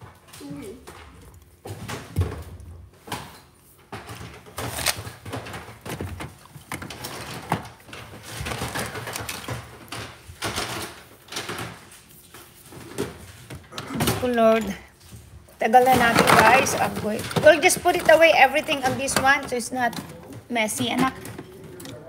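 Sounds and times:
plastic toys knocking and rustling: 0:00.0 - 0:22.0.

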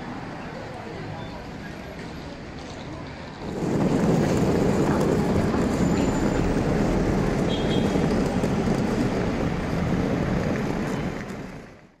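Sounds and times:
traffic rumble: 0:00.0 - 0:12.0
wind on microphone: 0:03.4 - 0:11.3.

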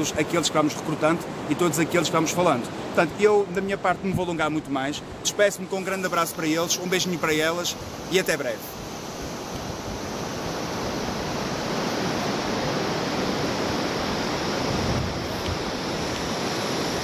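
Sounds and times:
ocean surf breaking: 0:00.0 - 0:17.0
wind: 0:00.0 - 0:17.0.

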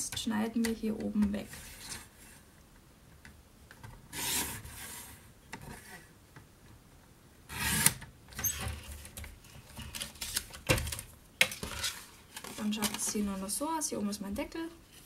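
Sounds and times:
paper rustling: 0:08.8 - 0:13.6.

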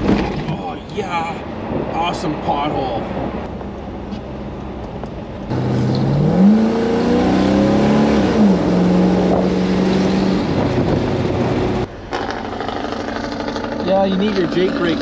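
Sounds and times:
vehicle engine pulling hard: 0:00.0 - 0:15.0.

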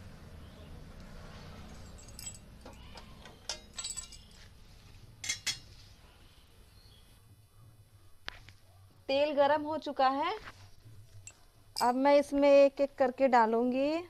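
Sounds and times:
steel spoon clinking on utensils: 0:01.8 - 0:04.4, 0:05.2 - 0:05.7, 0:11.3 - 0:12.0.

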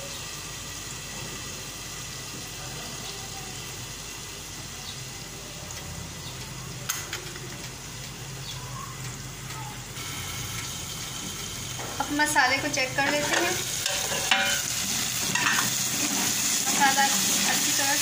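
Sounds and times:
food sizzling in a covered pot: 0:00.0 - 0:18.0.

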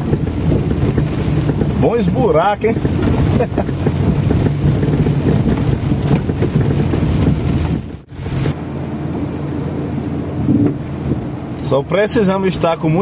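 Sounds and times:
car engine and tyres rumbling: 0:00.0 - 0:13.0
knocks from bumps: 0:02.7 - 0:08.4.

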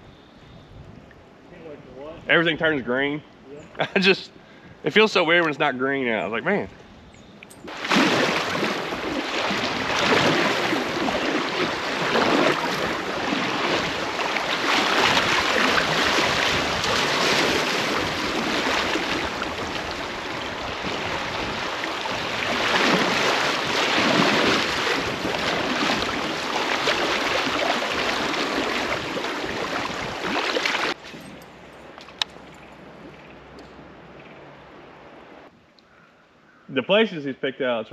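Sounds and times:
water splashing against kayak hull: 0:07.6 - 0:34.0
creek water rushing: 0:07.7 - 0:35.4.

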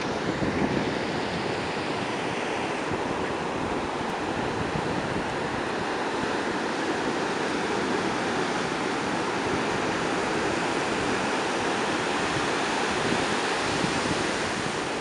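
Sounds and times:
surf breaking on beach: 0:00.0 - 0:15.0.

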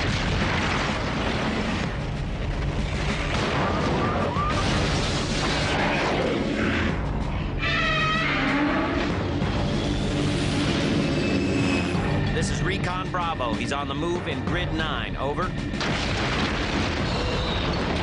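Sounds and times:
rubble crashing: 0:00.0 - 0:06.4, 0:15.8 - 0:18.0
dramatic background music: 0:00.0 - 0:18.0.

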